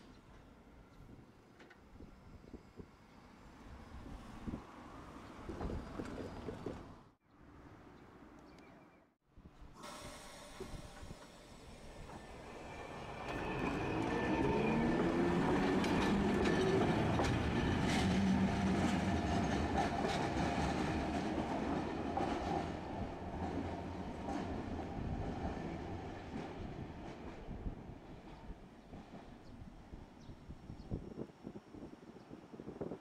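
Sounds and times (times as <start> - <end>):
streetcar motor whine: 10.4 - 20.4.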